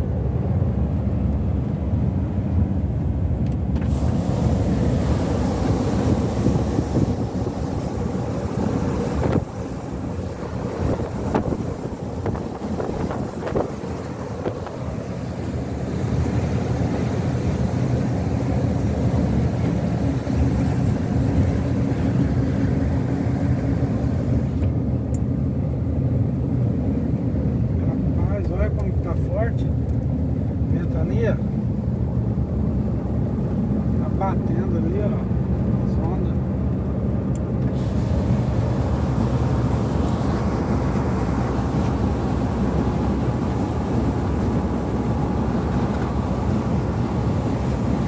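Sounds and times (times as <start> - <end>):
vehicle driving at speed: 0.0 - 28.1, 28.7 - 48.0
wind rushing past: 3.9 - 17.7.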